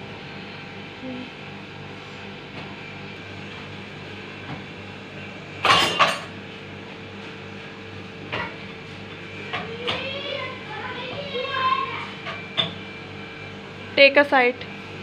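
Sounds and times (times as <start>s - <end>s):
dishes clattering: 5.6s - 6.3s.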